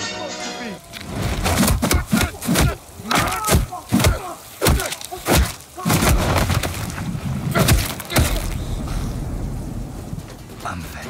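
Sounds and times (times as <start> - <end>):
low rumble: 7.0 - 11.0.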